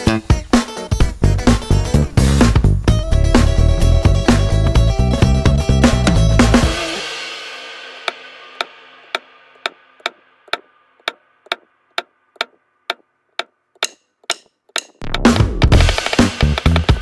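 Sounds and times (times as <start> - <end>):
background music: 0.0 - 10.2, 14.3 - 17.0
mallet tapping leather tool: 8.6 - 15.2.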